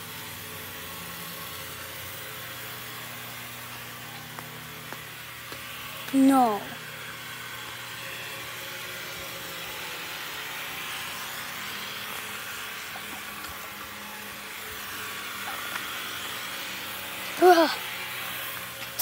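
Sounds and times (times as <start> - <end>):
water spraying on pavers: 0.0 - 19.0.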